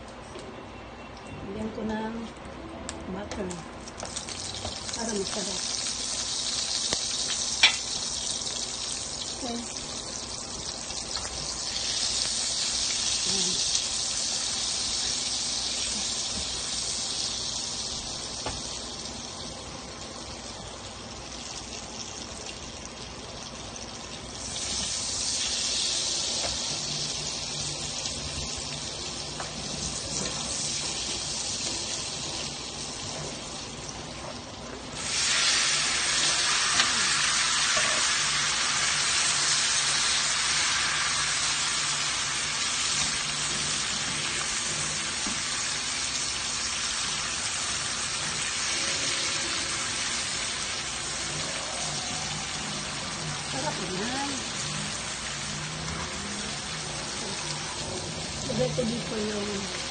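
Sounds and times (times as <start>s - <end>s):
shrimp sizzling in butter: 3.8s - 59.9s
butter sizzling in a frying pan: 3.9s - 59.9s.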